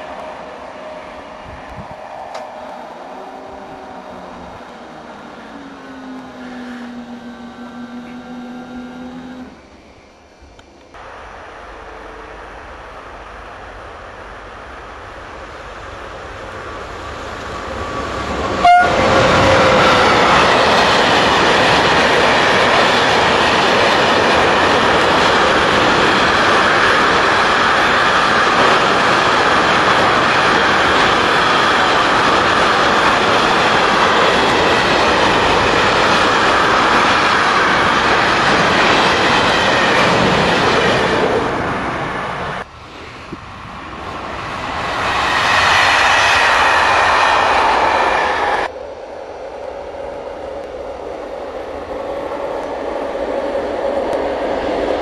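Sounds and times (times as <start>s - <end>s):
train horn toot: 0.0s - 9.6s, 18.6s - 20.4s.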